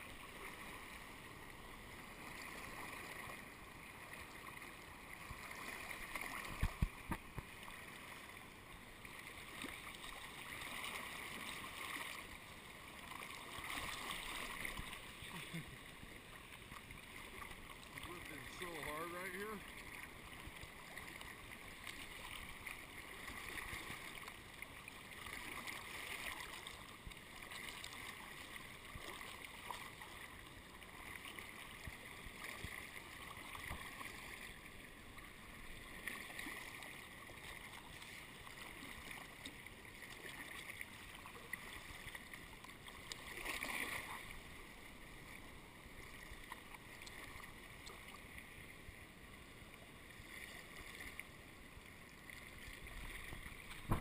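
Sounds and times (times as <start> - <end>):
kayak paddle swishing water: 0.0 - 54.0
water lapping hull: 0.0 - 54.0
water splash: 5.2 - 7.5, 13.2 - 15.6, 43.1 - 44.3, 53.1 - 54.0.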